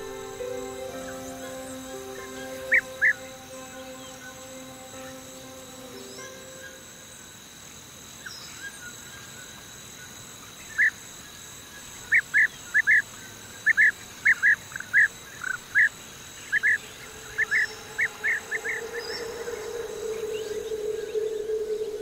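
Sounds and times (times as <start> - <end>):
faint high whine: 0.0 - 8.9, 15.0 - 22.0.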